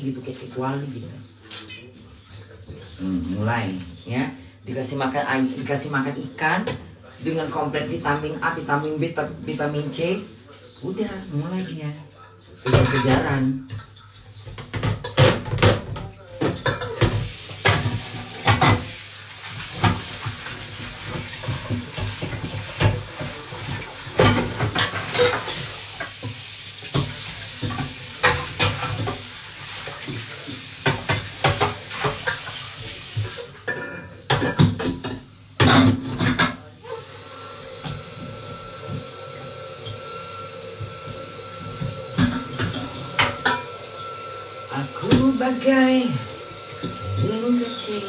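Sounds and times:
food sizzling: 0:16.7 - 0:48.0.

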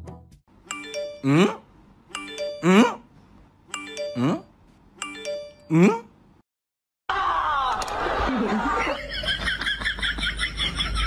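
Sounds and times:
doorbell-like chime: 0:00.7 - 0:01.3, 0:02.2 - 0:02.7, 0:03.8 - 0:04.4, 0:05.0 - 0:05.7.

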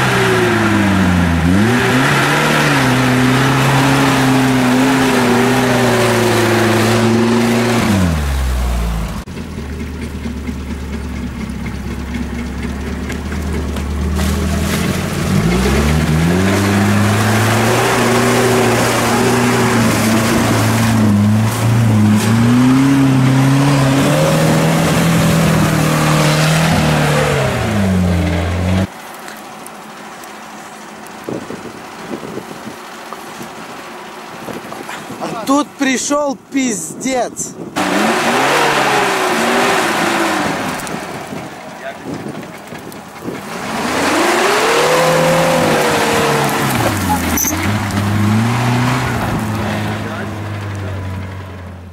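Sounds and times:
engine revving: 0:00.0 - 0:09.3, 0:12.3 - 0:28.9, 0:37.8 - 0:41.9, 0:43.2 - 0:51.9.

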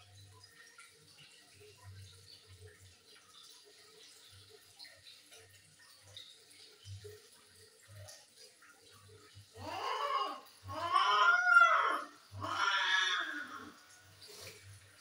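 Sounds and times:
cat yowling: 0:09.6 - 0:13.8.

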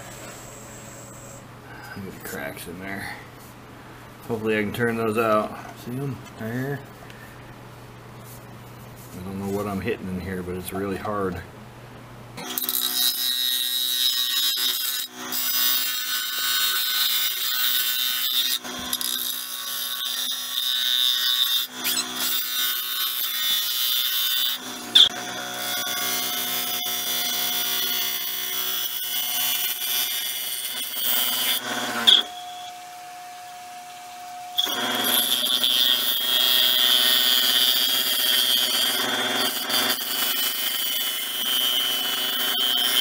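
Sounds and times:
tool scraping wood on a lathe: 0:09.0 - 0:09.8, 0:34.6 - 0:43.0.

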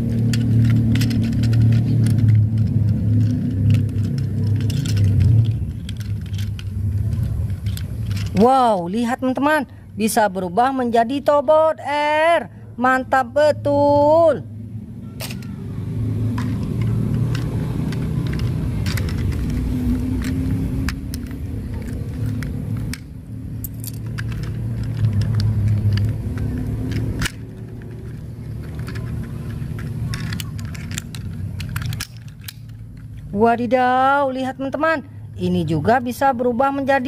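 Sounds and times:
plastic toy parts clicking: 0:00.0 - 0:09.4, 0:15.2 - 0:15.6, 0:16.3 - 0:33.3
low steady rumble: 0:00.0 - 0:37.0.

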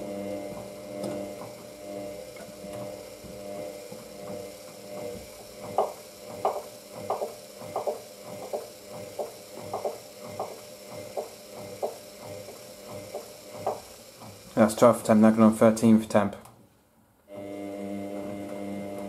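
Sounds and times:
washing machine motor hum: 0:00.0 - 0:19.0
wet washing thumping in drum: 0:05.0 - 0:14.4.

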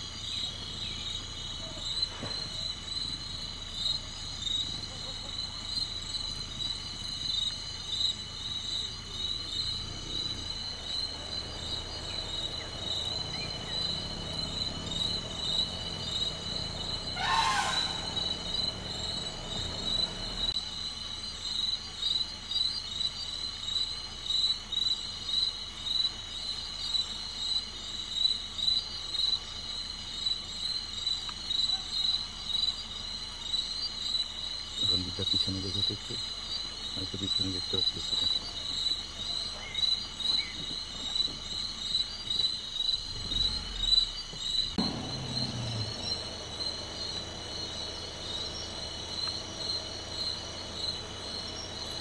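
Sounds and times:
crickets chirping: 0:00.0 - 0:52.0
low hum: 0:09.4 - 0:20.6, 0:43.1 - 0:52.0.

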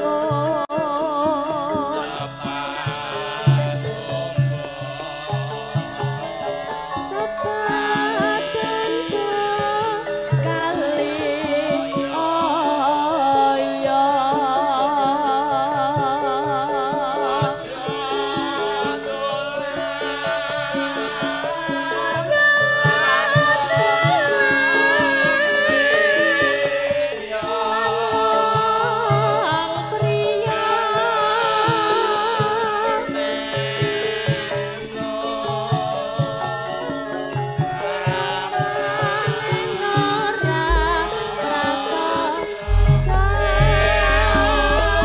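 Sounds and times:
ornamented melodic line: 0:03.4 - 0:45.0
low drum strokes: 0:40.7 - 0:41.5, 0:42.6 - 0:45.0.

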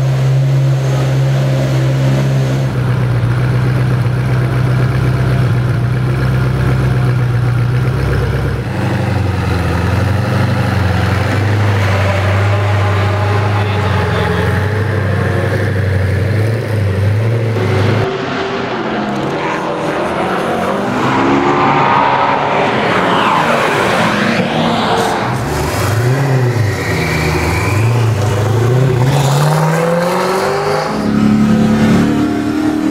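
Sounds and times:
car engine accelerating: 0:00.0 - 0:32.9
car engine idling: 0:02.6 - 0:18.1.

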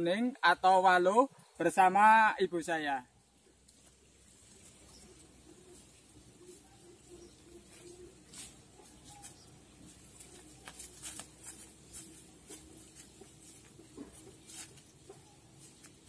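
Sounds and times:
footsteps on dry leaves and twigs: 0:07.2 - 0:16.0.

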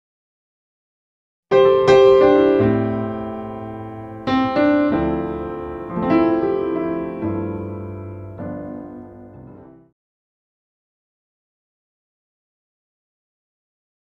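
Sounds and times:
slow piano chords: 0:01.5 - 0:10.0.

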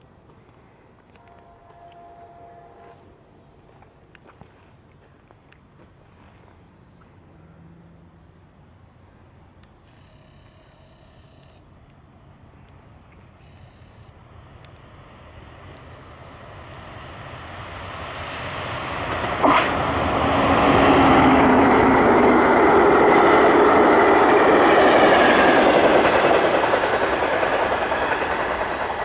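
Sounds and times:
passenger train passing: 0:01.1 - 0:03.3, 0:14.2 - 0:29.0.

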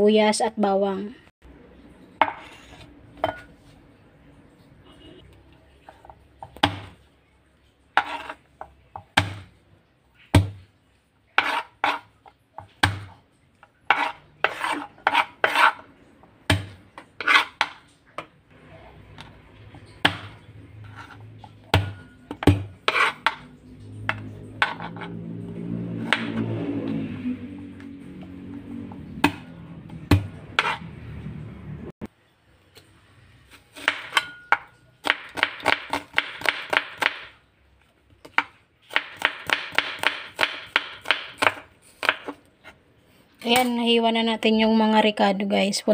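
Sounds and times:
knife scraping: 0:02.2 - 0:03.6, 0:07.9 - 0:08.5, 0:11.3 - 0:12.4, 0:13.6 - 0:16.1, 0:16.9 - 0:18.0, 0:19.1 - 0:25.2, 0:30.4 - 0:31.0.

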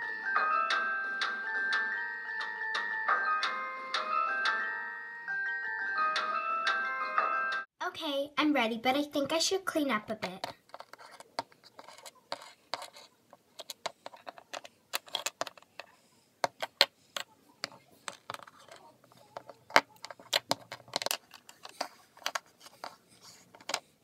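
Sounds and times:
plastic toys clicking and tapping: 0:10.1 - 0:24.0.

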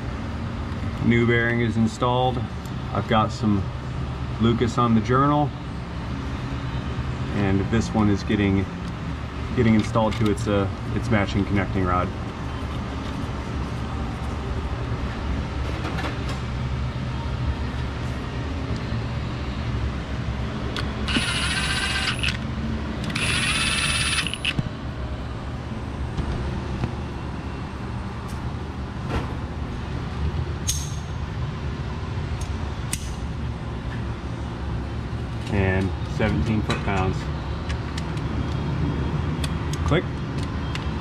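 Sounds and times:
steady low hum: 0:00.0 - 0:41.0
ratchet spinning: 0:21.1 - 0:22.4, 0:23.0 - 0:24.6.

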